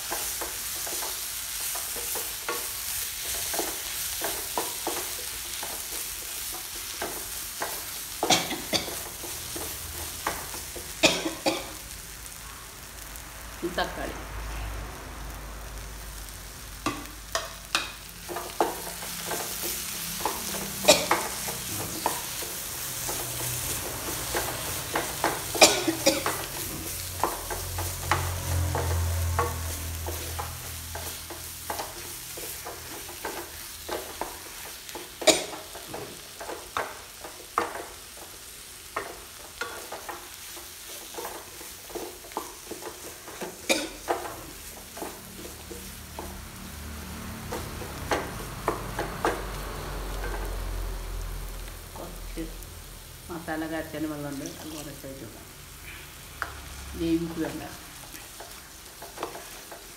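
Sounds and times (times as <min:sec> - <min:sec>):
food sizzling: 0:00.0 - 0:59.9
utensil scraping in a pan: 0:17.7 - 0:38.0.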